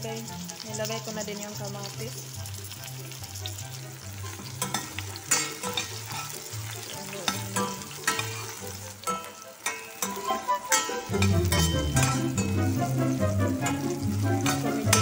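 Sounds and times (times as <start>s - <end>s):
vegetables sizzling in oil: 0.0s - 15.0s
background music bass line: 10.3s - 15.0s.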